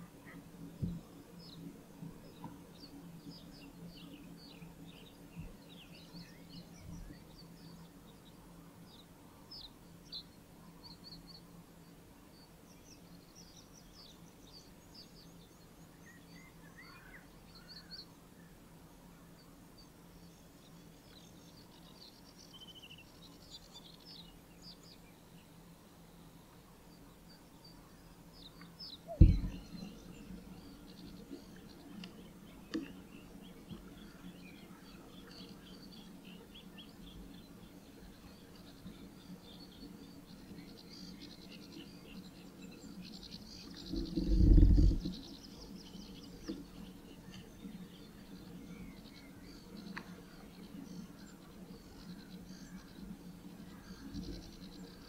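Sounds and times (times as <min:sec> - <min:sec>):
low steady hum: 0:00.0 - 0:55.0
small birds chirping: 0:19.3 - 0:55.0
soft knocks: 0:29.2 - 0:29.6.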